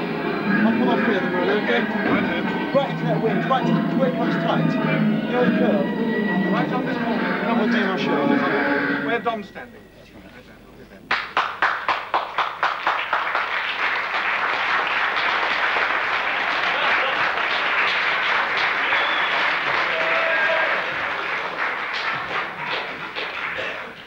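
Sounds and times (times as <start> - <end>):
audience applauding: 11.1 - 24.0.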